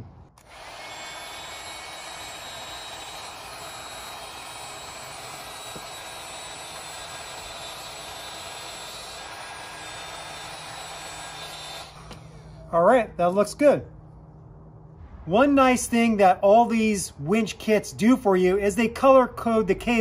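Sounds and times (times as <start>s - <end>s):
heat gun blowing air: 0.4s - 12.6s.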